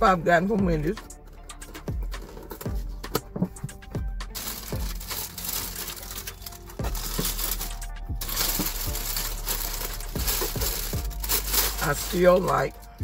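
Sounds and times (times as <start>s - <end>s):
plastic bag crinkling: 4.3s - 13.0s.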